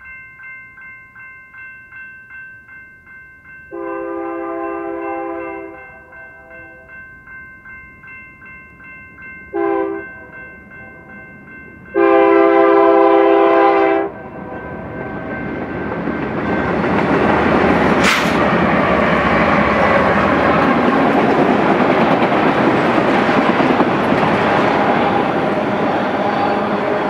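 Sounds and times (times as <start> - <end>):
crossing bell ringing: 0.0 - 27.0
train rumble and wheel noise: 2.7 - 27.0
locomotive air horn blasts: 3.7 - 6.9, 9.6 - 10.0, 12.0 - 14.2
sharp metal clank: 18.0 - 18.5.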